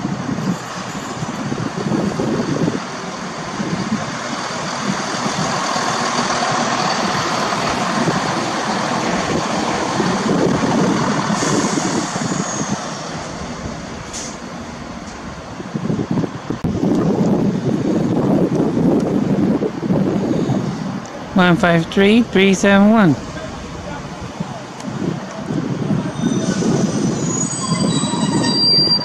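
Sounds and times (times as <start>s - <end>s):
wheel-on-rail noise: 0.0s - 21.4s, 23.2s - 29.0s
diesel train engines running: 0.0s - 29.0s
high squeal: 11.3s - 14.4s, 25.8s - 29.0s.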